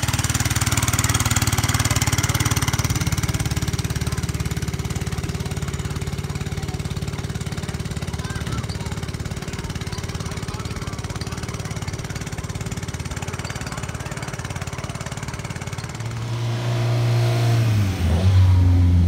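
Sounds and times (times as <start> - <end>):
car engine running: 0.0 - 19.0.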